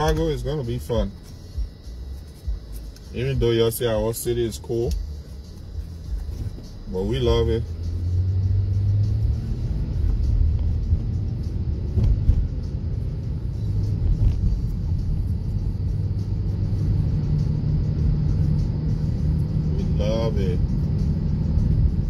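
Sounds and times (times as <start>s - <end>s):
car engine and road rumble: 0.0s - 22.0s.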